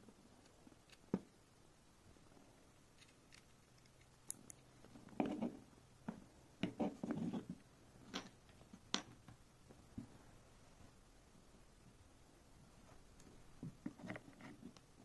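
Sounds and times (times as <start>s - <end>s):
scraping and light knocks: 4.9s - 7.6s.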